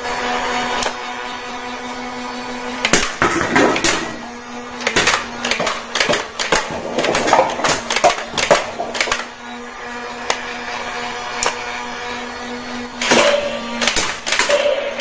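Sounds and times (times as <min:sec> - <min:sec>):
toy gun motor whirring: 0:00.0 - 0:15.0
toy gun shots clicking: 0:04.8 - 0:09.3, 0:13.0 - 0:15.0.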